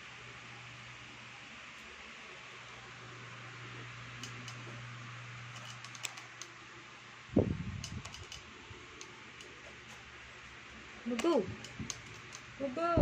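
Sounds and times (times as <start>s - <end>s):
electric fan running: 0.0s - 13.0s
light clicks: 4.2s - 4.6s, 11.1s - 12.5s.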